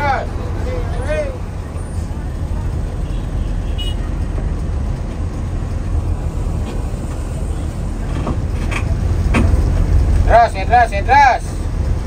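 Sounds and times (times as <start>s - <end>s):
coach diesel engine rumble: 0.0s - 12.0s
road noise: 0.0s - 12.0s.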